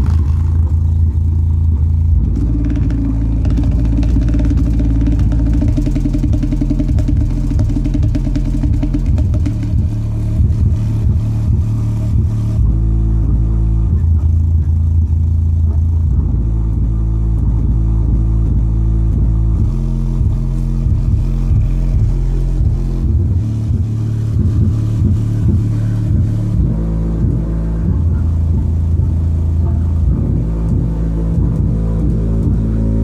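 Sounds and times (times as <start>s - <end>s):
bass-heavy music from subwoofer: 0.0s - 33.0s.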